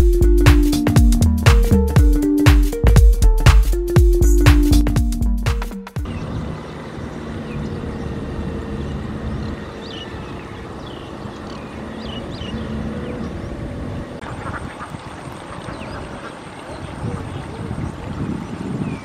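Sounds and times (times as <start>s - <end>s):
electronic music: 0.0s - 6.1s
tractor diesel engine under load: 6.0s - 14.2s.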